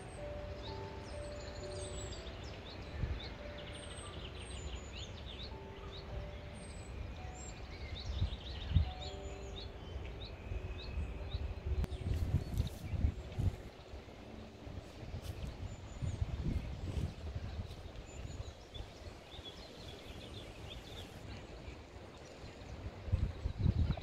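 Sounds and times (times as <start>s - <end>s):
songbirds chirping and singing: 0.0s - 24.0s
low gusty rumble: 4.9s - 24.0s.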